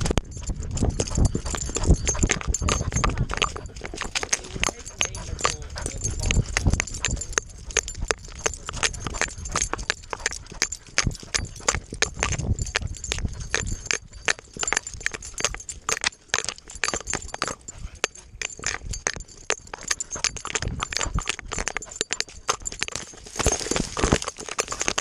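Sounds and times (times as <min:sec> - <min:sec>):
dog paws thudding: 0:00.0 - 0:25.0
dry grass rustling: 0:23.0 - 0:25.0.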